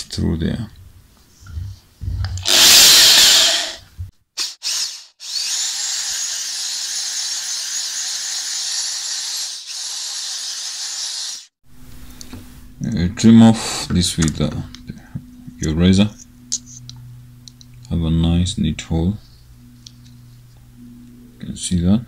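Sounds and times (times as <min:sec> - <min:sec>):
electric drill boring plastic: 0:02.4 - 0:03.8, 0:04.6 - 0:11.5.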